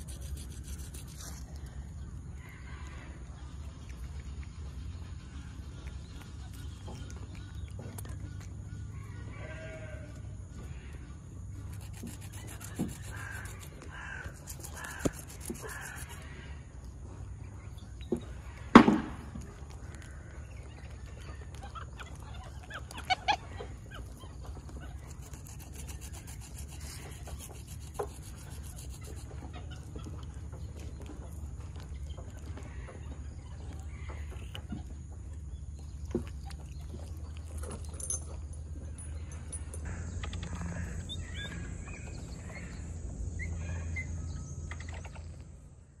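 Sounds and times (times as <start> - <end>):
hands rubbing and scratching: 0.0 - 1.8, 11.7 - 16.3, 24.9 - 29.7.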